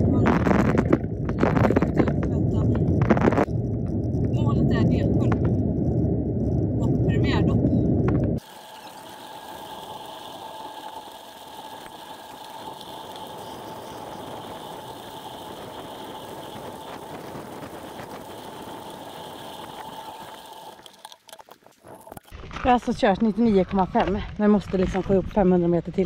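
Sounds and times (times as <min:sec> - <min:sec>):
bicycle tyres on gravel: 0:08.4 - 0:25.4.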